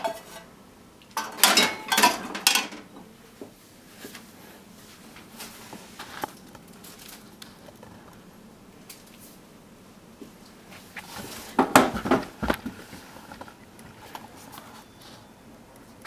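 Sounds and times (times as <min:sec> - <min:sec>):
dishes and utensils clattering: 0:00.0 - 0:00.5, 0:01.2 - 0:03.1.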